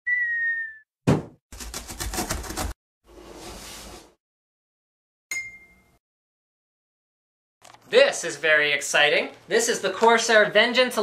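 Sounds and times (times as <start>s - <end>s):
whistle-like tone: 0.0s - 0.9s
sharp thump: 1.1s - 1.4s.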